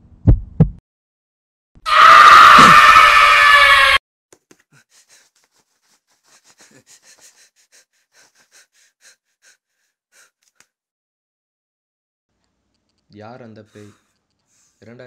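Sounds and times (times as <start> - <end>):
person breathing fast: 4.6 - 10.7.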